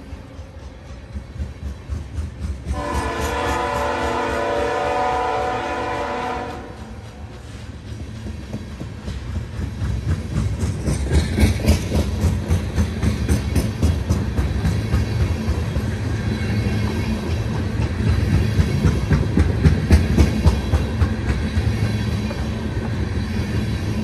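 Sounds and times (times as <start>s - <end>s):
passing train rumble: 0.0s - 24.0s
train wheels clacking over rail joints: 0.0s - 24.0s
locomotive air horn blast: 2.7s - 7.0s.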